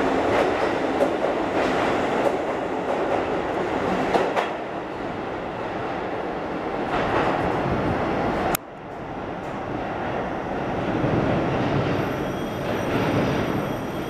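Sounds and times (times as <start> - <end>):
electric train rumbling through station: 0.0 - 14.0
sharp clicks from train wheels: 0.1 - 4.6.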